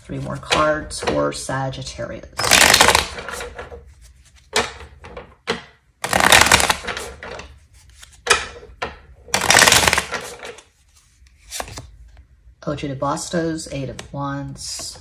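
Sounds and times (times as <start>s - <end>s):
cards shuffling: 2.4s - 4.6s, 6.0s - 8.4s, 9.3s - 12.2s.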